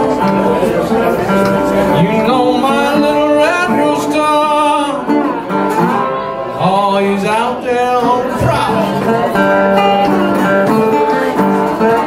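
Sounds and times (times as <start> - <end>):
resonator guitar blues: 0.0 - 12.0
man singing: 1.7 - 5.3, 6.6 - 11.2.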